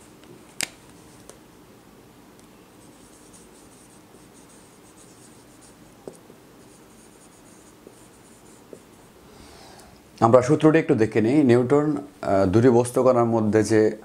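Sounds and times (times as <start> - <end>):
marker scratching on whiteboard: 2.7 - 9.1.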